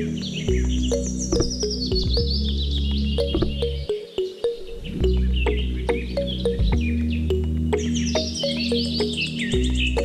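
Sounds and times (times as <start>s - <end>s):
background music with bass: 0.0s - 10.0s
birds chirping: 0.0s - 10.0s.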